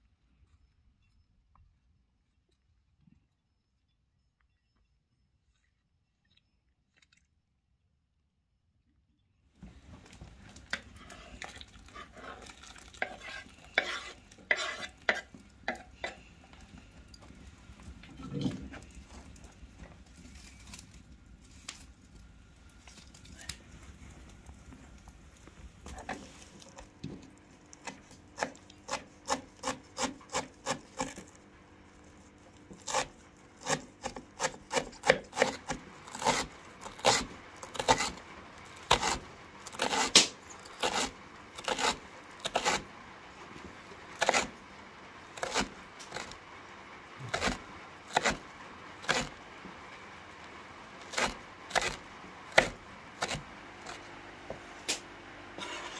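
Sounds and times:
knife chopping on wooden board: 0:13.0 - 0:16.2, 0:27.8 - 0:31.3, 0:32.7 - 0:38.2, 0:38.8 - 0:42.8, 0:44.2 - 0:44.5, 0:45.4 - 0:46.4, 0:47.3 - 0:48.4, 0:51.1 - 0:54.6.

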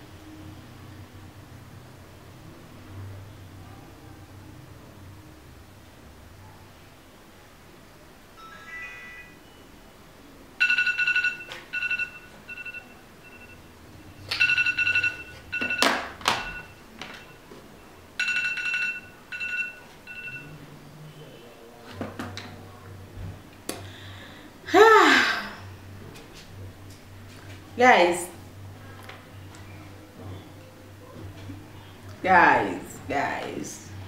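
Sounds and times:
electronic timer alarm beeping: 0:10.6 - 0:17.4, 0:18.2 - 0:20.6.

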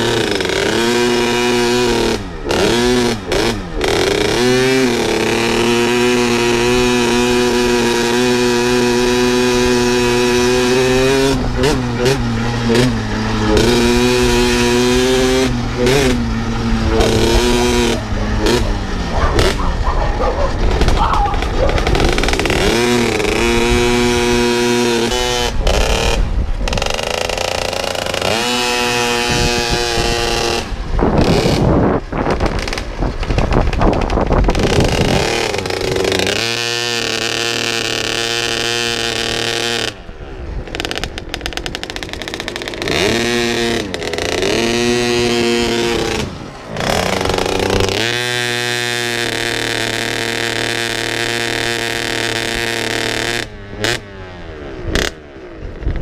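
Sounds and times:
motocross bike engine revving: 0:00.0 - 0:56.0.

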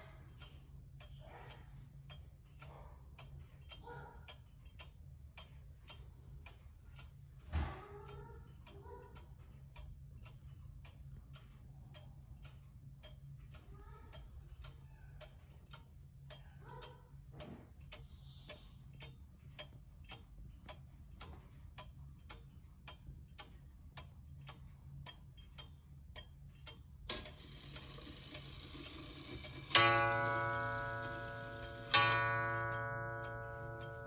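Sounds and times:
pendulum wall clock ticking: 0:00.0 - 0:34.0.

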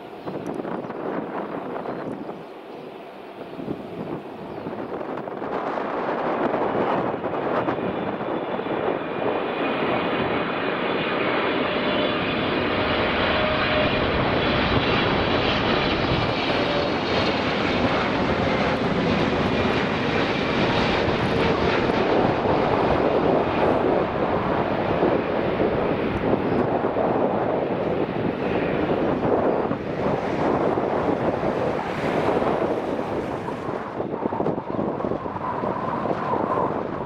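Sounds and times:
jet engines on approach: 0:00.0 - 0:37.0
high fan whine: 0:11.4 - 0:37.0.

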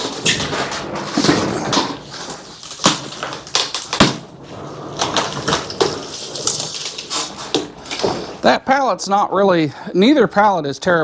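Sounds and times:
heavy unit scraping on pallet: 0:04.4 - 0:08.4.

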